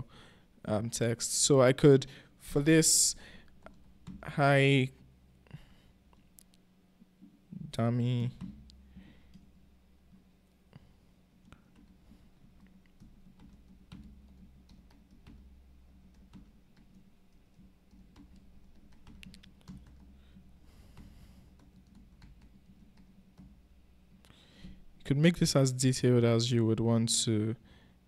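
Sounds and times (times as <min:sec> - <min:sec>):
low steady hum: 0:00.0 - 0:28.0
typing on a keyboard: 0:11.4 - 0:20.4, 0:21.0 - 0:23.6.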